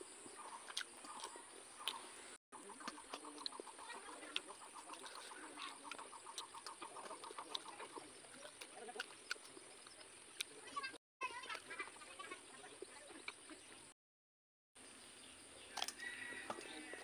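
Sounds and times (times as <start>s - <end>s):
soft chewing clicks: 0.4s - 2.1s, 2.7s - 10.7s.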